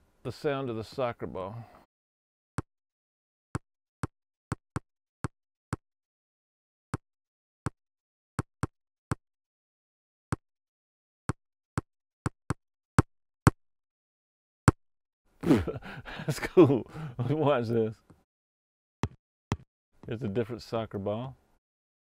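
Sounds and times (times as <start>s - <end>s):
foot kicking a ball: 19.0s - 19.7s.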